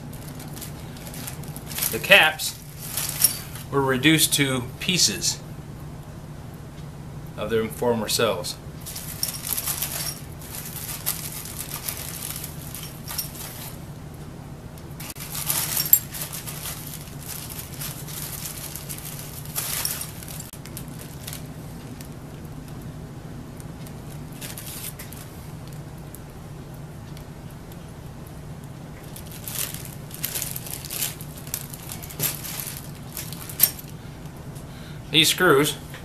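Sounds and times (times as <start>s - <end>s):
plastic bag crinkling: 0.0s - 3.7s, 8.8s - 13.8s, 15.0s - 22.4s, 23.8s - 25.8s, 29.1s - 34.0s
faint steady hum: 0.0s - 36.0s
metal bolts clinking: 33.5s - 33.9s.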